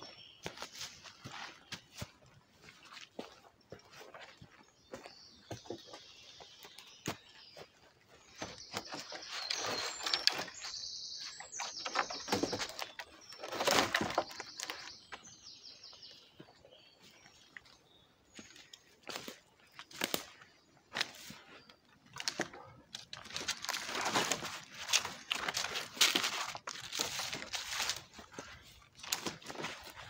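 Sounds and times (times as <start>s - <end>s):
songbirds singing: 0.0s - 30.0s
wooden poles knocking and scraping: 8.4s - 14.9s.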